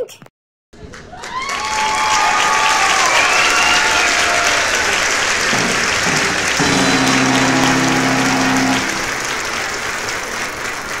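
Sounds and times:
audience applauding: 0:01.0 - 0:11.0
held low musical note: 0:05.5 - 0:09.6.

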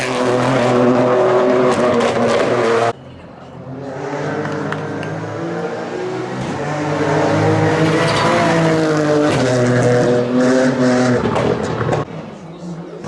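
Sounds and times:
rally car engine revving: 0:00.0 - 0:03.0, 0:03.6 - 0:12.8.

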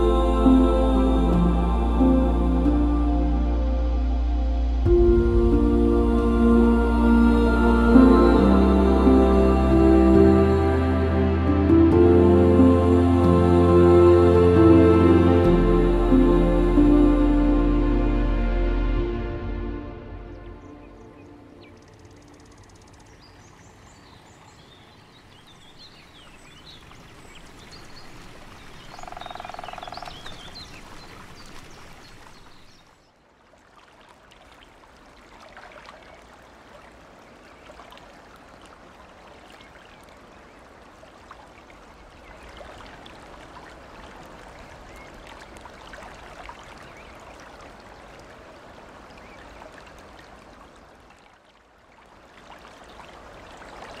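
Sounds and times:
water babbling over gravel: 0:21.9 - 0:54.0.

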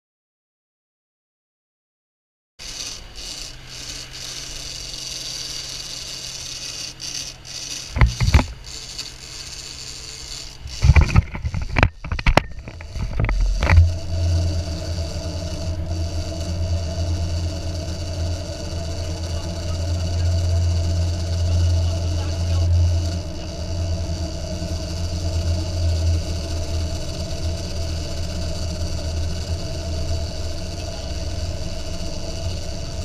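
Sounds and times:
boat engine running: 0:02.6 - 0:33.0
wind: 0:02.6 - 0:33.0
knocks and rattles: 0:07.9 - 0:08.6, 0:10.6 - 0:14.0.

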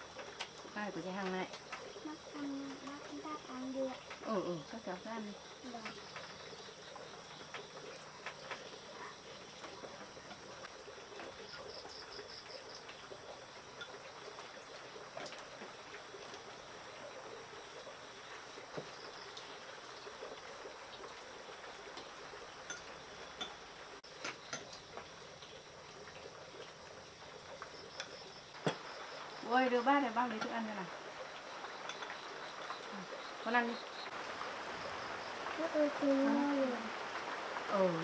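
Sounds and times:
night insects chirping: 0:00.0 - 0:38.0.

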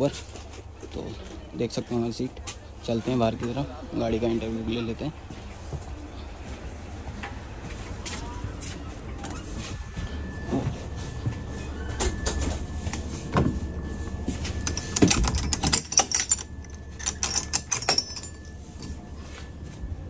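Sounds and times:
steady low hum: 0:00.0 - 0:20.0
faint high steady tone: 0:08.3 - 0:20.0.

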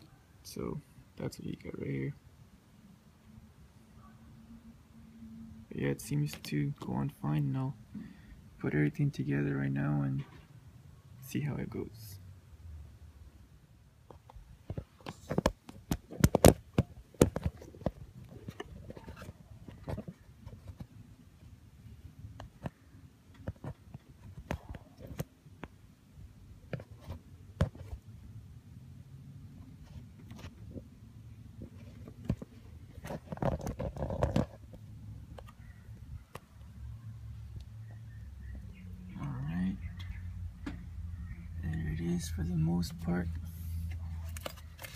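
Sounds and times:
sharp clicks and knocks: 0:14.1 - 0:20.9
rustling and clattering: 0:14.1 - 0:21.0, 0:31.5 - 0:35.5.

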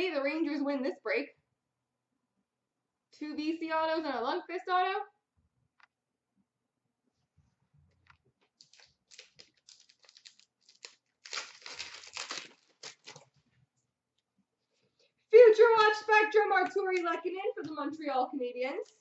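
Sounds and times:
foil wrapper tearing and crinkling: 0:08.6 - 0:13.4.

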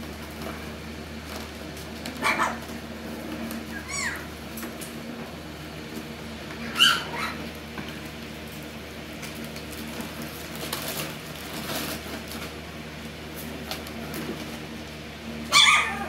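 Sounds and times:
puppies scuffling and scratching: 0:00.0 - 0:16.0
puppy yipping: 0:02.2 - 0:02.6, 0:03.7 - 0:04.3, 0:06.6 - 0:07.5, 0:15.5 - 0:16.0.

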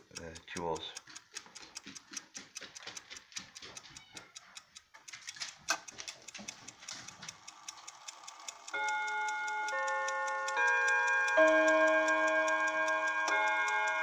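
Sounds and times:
clock ticking: 0:00.0 - 0:14.0
clock chime rods striking: 0:08.7 - 0:14.0.

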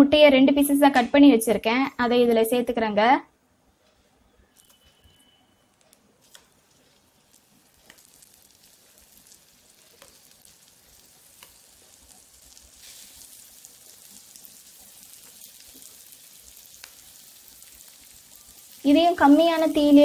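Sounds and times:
eggs sizzling in oil: 0:06.2 - 0:20.0.

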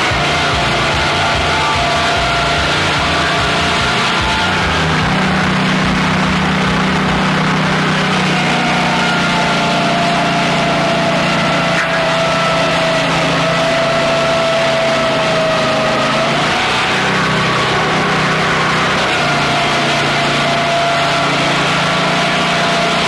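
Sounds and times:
band sawmill cutting log: 0:00.0 - 0:23.0.

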